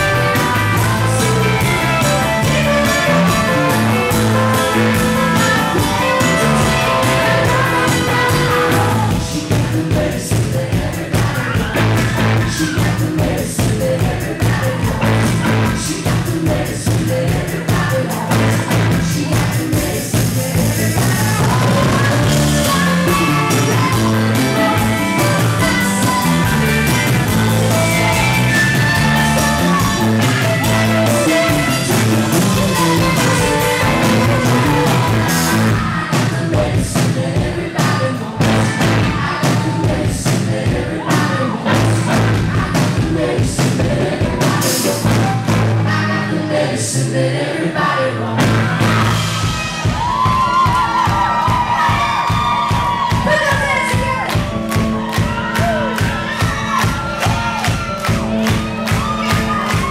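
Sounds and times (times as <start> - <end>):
woman singing: 0.0 - 45.1
drum and cymbal hits: 0.0 - 45.9, 48.4 - 59.9
live rock band playing: 0.0 - 46.6, 48.3 - 59.9.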